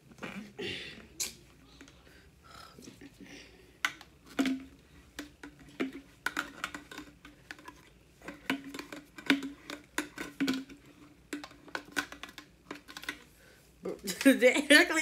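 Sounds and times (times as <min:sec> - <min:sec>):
plastic bottle clicks and knocks: 0:03.8 - 0:13.2.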